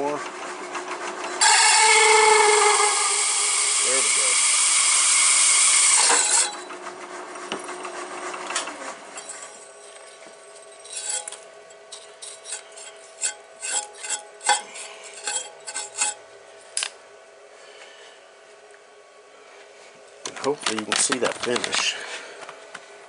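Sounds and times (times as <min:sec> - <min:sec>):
hole saw cutting metal: 0:01.4 - 0:06.7, 0:10.9 - 0:16.2
brush scraping metal chips: 0:09.2 - 0:16.2, 0:20.4 - 0:22.1
faint steady hum: 0:09.2 - 0:23.0.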